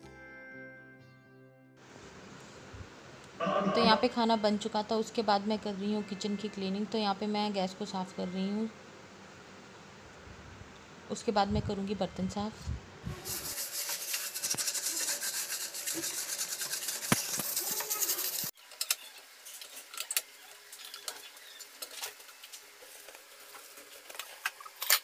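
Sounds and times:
steel wool scrubbing stovetop: 13.1 - 18.6.

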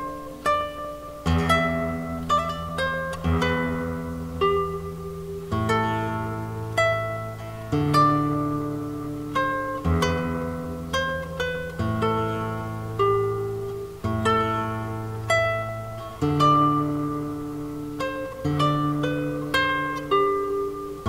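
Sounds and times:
plucked acoustic guitar notes: 0.0 - 21.0.

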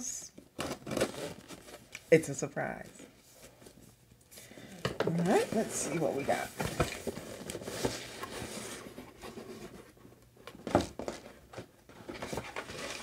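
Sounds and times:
cardboard box rustling: 5.0 - 10.0, 10.7 - 13.0.

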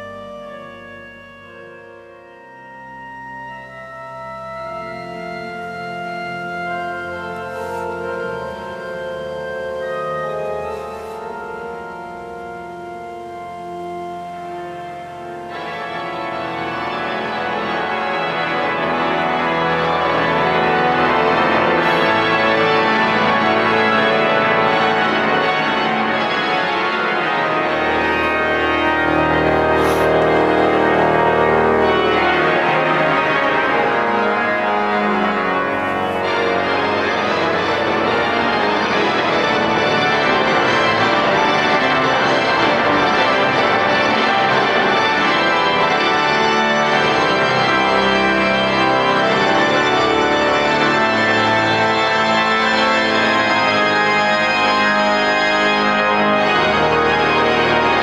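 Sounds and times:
pipe organ chords: 0.0 - 58.0
deep organ bass note: 24.2 - 38.5.

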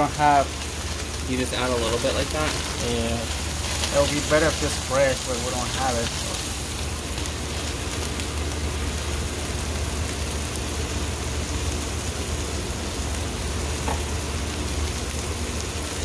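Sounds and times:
steady low hum: 0.0 - 16.0
vegetables sizzling in frying pan: 0.0 - 16.0.

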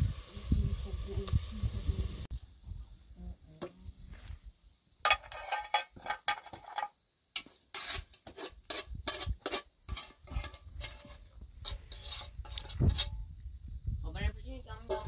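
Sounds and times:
objects clattering and scraping: 5.1 - 13.2.

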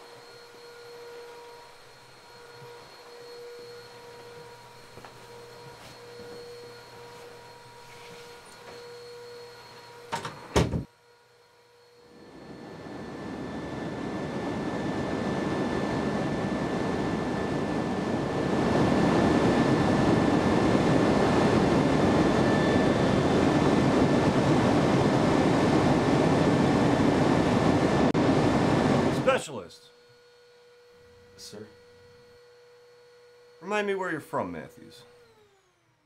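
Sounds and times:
high ringing tone: 0.0 - 10.5
aircraft engine drone: 11.8 - 29.8.

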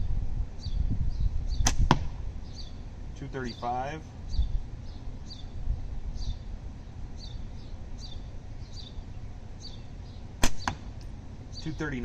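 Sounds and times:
bird chirping: 0.6 - 1.7, 2.4 - 10.8, 11.4 - 12.0
slingshot snap: 1.6 - 2.2, 10.4 - 11.1.

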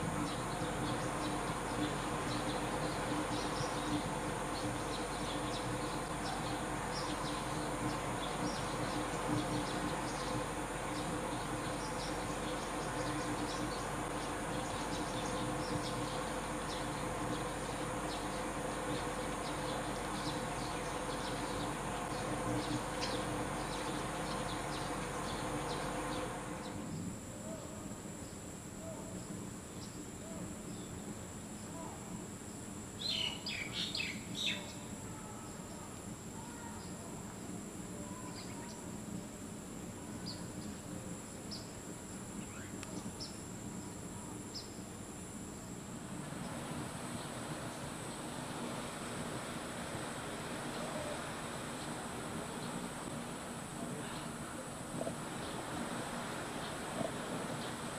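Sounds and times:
insect drone: 0.0 - 57.9
bird chirps: 33.0 - 34.8.

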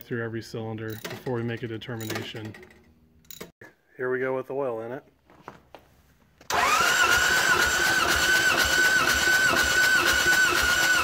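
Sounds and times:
starter motor cranking engine: 6.5 - 11.0.

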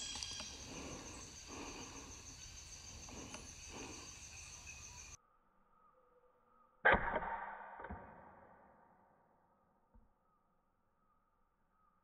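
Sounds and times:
insects droning: 0.0 - 6.7.

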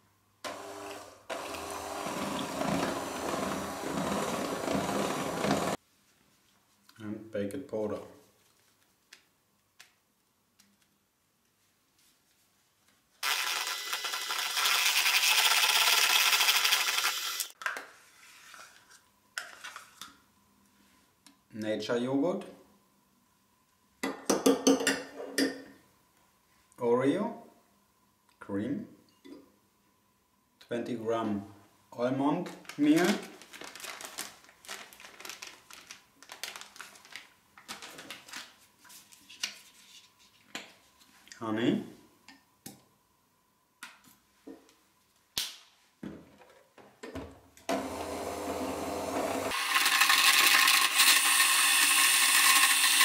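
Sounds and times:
electric hand mixer beating batter: 0.5 - 5.8, 13.2 - 17.5, 47.7 - 53.0
plastic packet crinkling: 32.5 - 38.7.

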